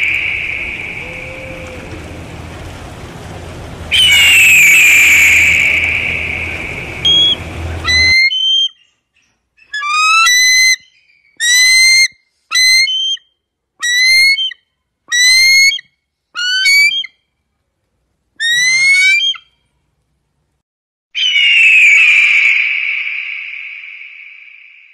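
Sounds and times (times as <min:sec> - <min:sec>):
eagle whistled call: 0:00.0 - 0:01.9, 0:03.9 - 0:08.9, 0:09.6 - 0:17.2, 0:18.4 - 0:19.5, 0:21.2 - 0:24.9
eagle calling: 0:00.0 - 0:02.2, 0:03.9 - 0:08.9, 0:09.6 - 0:17.1, 0:18.4 - 0:19.5.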